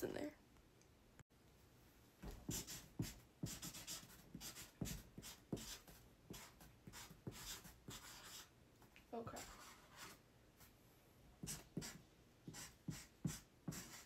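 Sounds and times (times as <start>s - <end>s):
marker scratching on cardboard: 2.5s - 8.5s, 9.4s - 10.2s, 11.4s - 14.0s.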